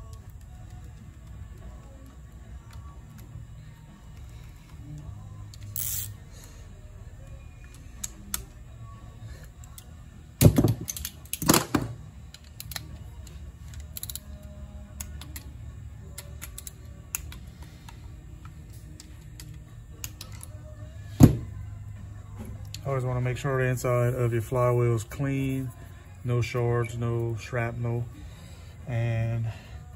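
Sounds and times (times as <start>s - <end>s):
ratchet clicking on metal: 5.5s - 6.2s, 13.7s - 14.5s.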